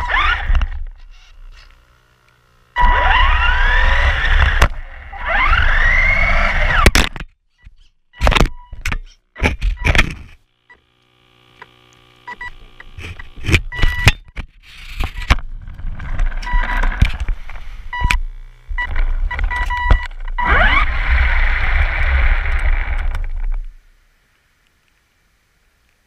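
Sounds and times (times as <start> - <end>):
electric motor whining: 0.0 - 7.0, 10.7 - 14.1, 14.8 - 23.8
short electronic tones: 2.8 - 3.6, 16.4 - 16.9, 17.9 - 23.0.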